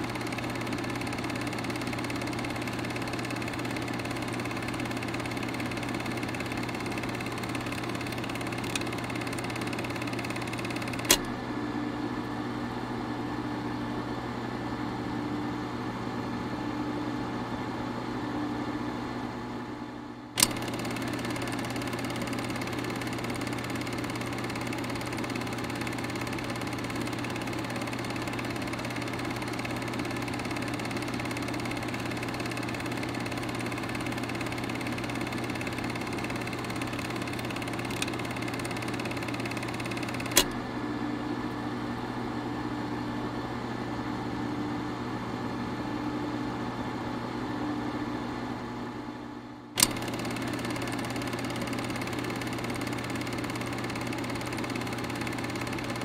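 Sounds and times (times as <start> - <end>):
projector sharp click: 0.0 - 11.4, 20.4 - 40.6, 49.8 - 56.0
film projector whirring: 0.0 - 12.4, 20.4 - 41.6, 49.8 - 56.0.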